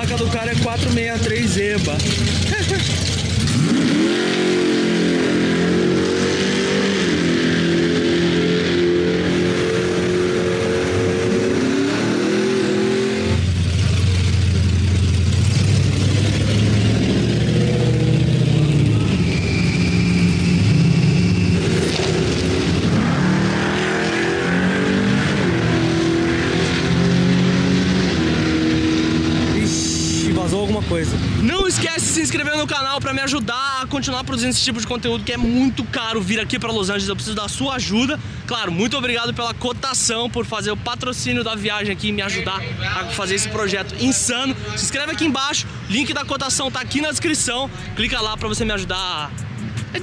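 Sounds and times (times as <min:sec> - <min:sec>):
pickup truck engine revving: 0:00.0 - 0:30.4
drag car engine revving: 0:00.0 - 0:31.4.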